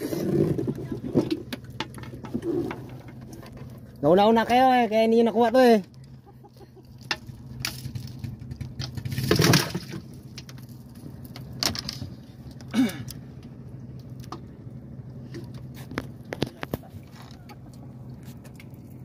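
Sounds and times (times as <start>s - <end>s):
boat engine running: 0.0s - 19.0s.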